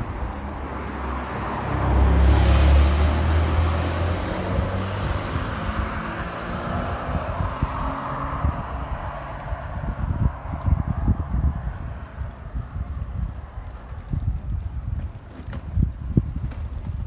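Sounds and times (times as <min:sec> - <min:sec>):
car driving past: 0:00.0 - 0:12.2.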